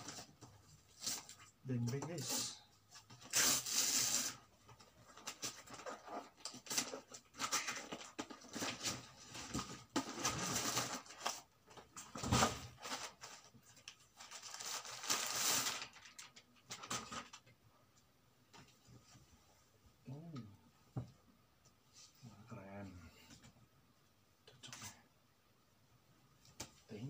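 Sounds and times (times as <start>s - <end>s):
wrapping paper rustling: 5.0s - 12.0s, 12.7s - 17.5s.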